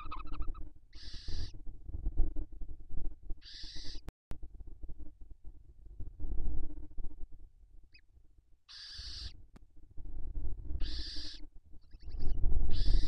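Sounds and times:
owl rasping hisses: 0:01.0 - 0:01.5, 0:03.4 - 0:04.0, 0:08.7 - 0:09.3, 0:10.8 - 0:11.4, 0:12.7 - 0:13.0.

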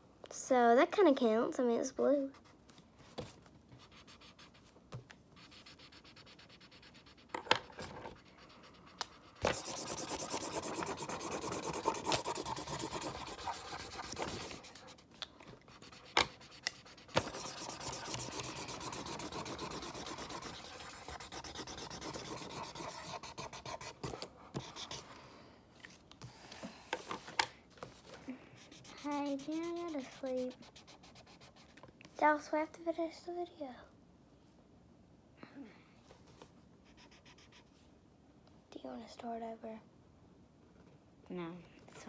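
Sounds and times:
marker scrubbing on paper: 0:03.8 - 0:04.7, 0:05.4 - 0:25.1, 0:28.6 - 0:31.8.

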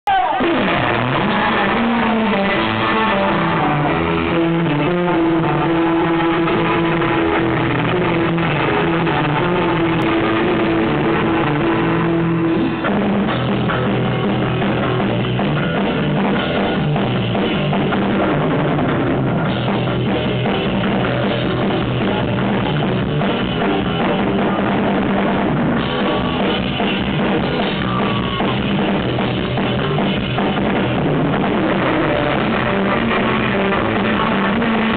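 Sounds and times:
drum kit: 0:00.1 - 0:34.9
electric guitar: 0:00.1 - 0:34.9.

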